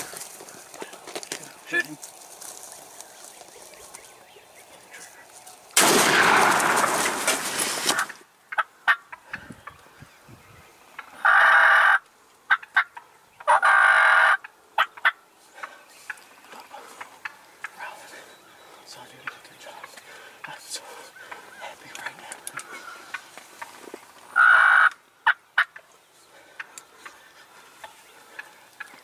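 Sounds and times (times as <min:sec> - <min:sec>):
turkeys gobbling: 0:02.1 - 0:09.9, 0:10.8 - 0:17.8, 0:19.2 - 0:29.0
faint clicks: 0:21.2 - 0:24.0.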